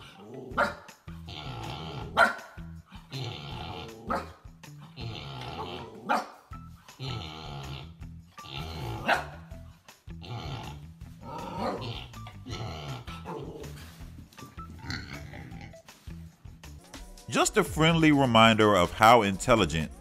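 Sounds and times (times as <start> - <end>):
puppy barking and growling: 0.0 - 6.4, 7.0 - 14.0, 14.8 - 15.8
background music: 0.0 - 20.0.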